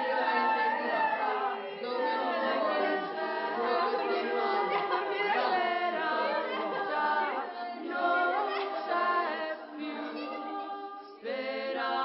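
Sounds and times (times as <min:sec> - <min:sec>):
women singing a cappella: 0:00.0 - 0:12.0.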